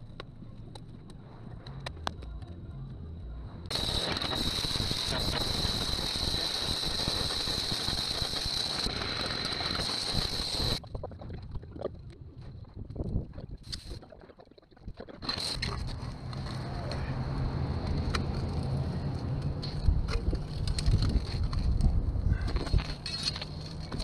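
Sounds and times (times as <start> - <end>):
cut-off saw cutting concrete: 3.7 - 10.8.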